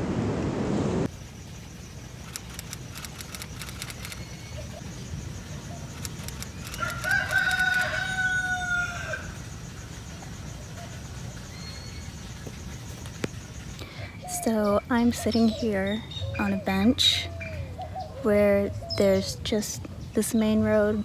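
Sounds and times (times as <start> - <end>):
rooster crowing: 6.7 - 9.4.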